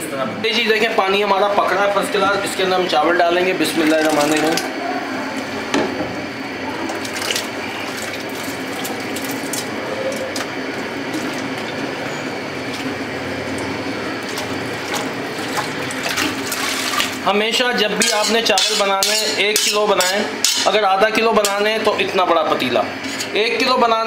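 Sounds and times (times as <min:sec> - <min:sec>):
boiling water hissing: 0:02.6 - 0:18.3
metal spoon scraping a bowl: 0:18.0 - 0:20.7.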